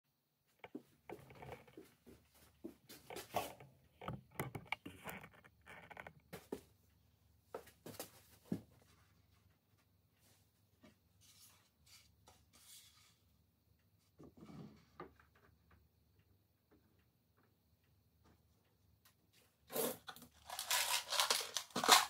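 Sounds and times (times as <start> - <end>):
rustles of handling things: 7.6 - 13.3, 19.3 - 22.0.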